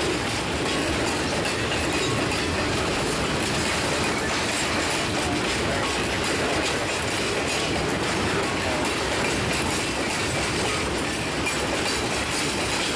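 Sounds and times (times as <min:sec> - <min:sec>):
train wheels rumbling on rail: 0:00.0 - 0:12.9.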